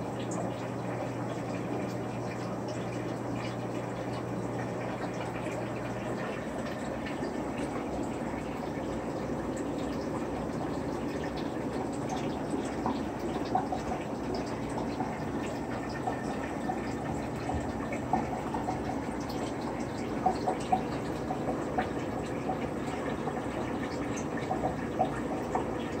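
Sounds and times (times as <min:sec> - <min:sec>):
aquarium water bubbling: 0:00.0 - 0:26.0.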